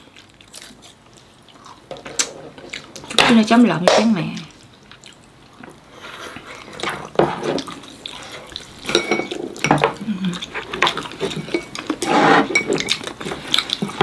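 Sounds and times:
chopsticks and spoon clinking on bowls: 0:06.7 - 0:14.0.

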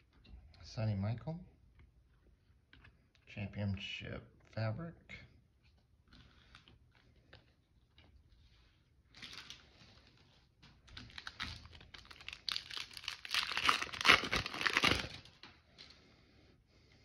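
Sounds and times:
foil wrapper crinkling and tearing: 0:10.9 - 0:15.4.

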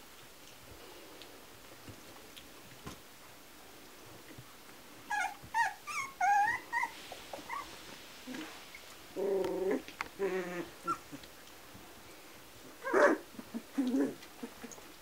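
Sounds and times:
puppies squeaking and yipping: 0:05.1 - 0:07.8, 0:10.6 - 0:11.2.

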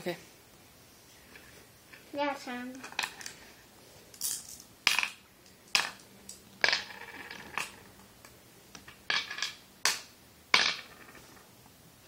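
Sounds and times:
glass stones clacking on wood: 0:04.2 - 0:07.9, 0:08.8 - 0:10.0.

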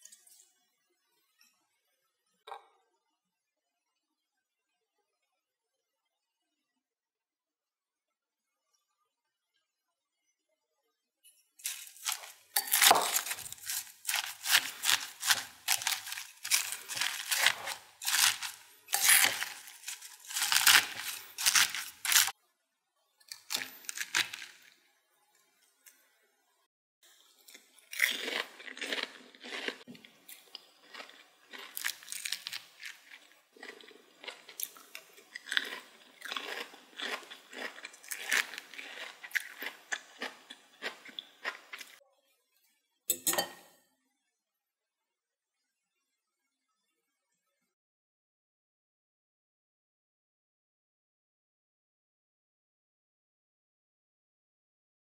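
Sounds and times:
crisp food crunching: 0:11.6 - 0:22.3, 0:23.3 - 0:24.8, 0:27.4 - 0:42.0.

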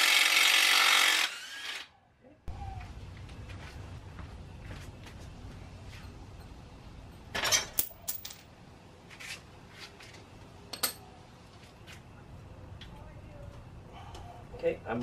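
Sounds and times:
metal tools clinking: 0:07.1 - 0:08.5, 0:10.7 - 0:11.0.

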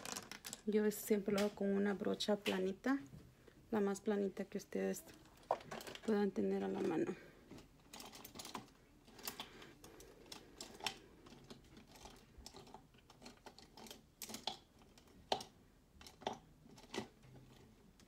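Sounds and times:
makeup tools clicking and tapping: 0:10.3 - 0:17.7.

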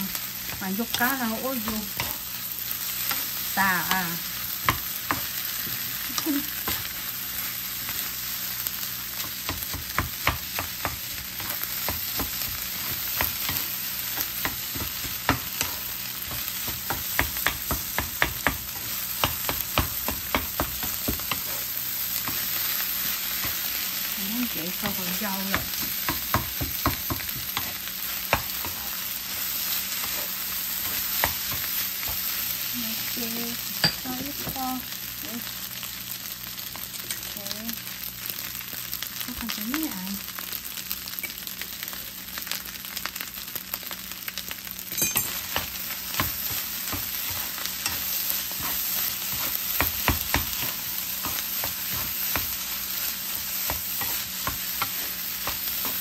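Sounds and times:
rice sizzling in frying pan: 0:00.0 - 0:56.0
wooden spatula tapping and scraping pan: 0:09.2 - 0:22.6, 0:24.7 - 0:29.0, 0:45.3 - 0:52.6.

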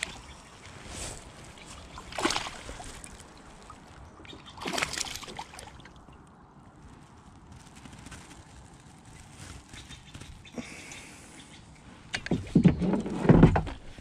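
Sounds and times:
fish thrashing and splashing: 0:00.0 - 0:06.4
loud splashes: 0:02.0 - 0:03.2, 0:04.4 - 0:05.9.

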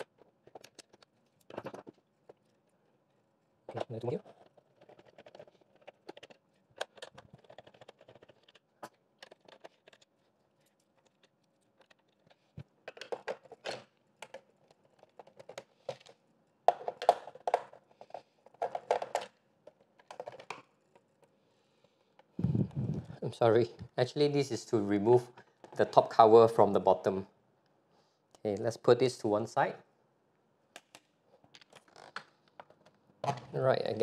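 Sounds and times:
plastic housing clicking and clattering: 0:00.0 - 0:02.4, 0:03.7 - 0:21.2.

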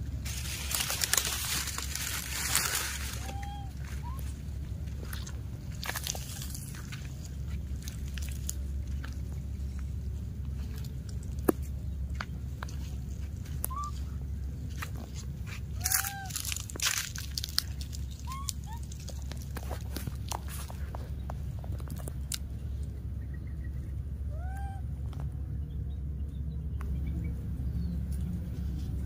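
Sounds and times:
dry leaves crunching and crackling: 0:00.0 - 0:22.5
steady low rumble: 0:00.0 - 0:29.0
short high chirping calls: 0:03.2 - 0:04.3, 0:13.7 - 0:14.2.

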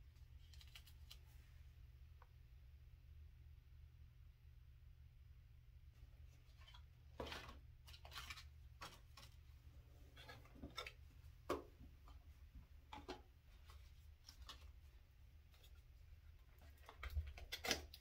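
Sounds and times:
low steady hum: 0:00.0 - 0:18.0
packaging clicks and rustles: 0:16.4 - 0:18.0.

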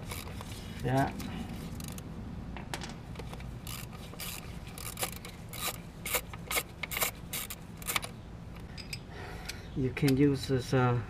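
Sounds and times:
socket ratchet clicking: 0:03.2 - 0:08.1.

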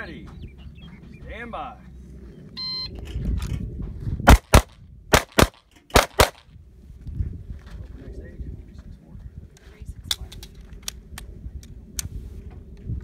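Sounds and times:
pistol shots: 0:04.3 - 0:06.4.

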